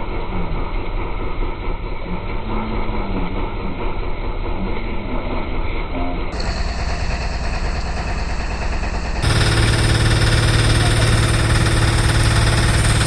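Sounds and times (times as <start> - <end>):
boat engine running: 6.4 - 13.0.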